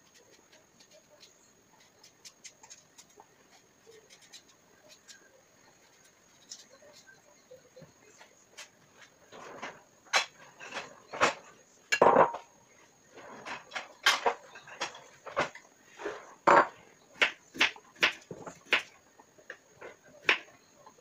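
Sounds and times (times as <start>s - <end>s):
dishes and utensils clinking: 9.5s - 12.5s, 16.4s - 16.8s.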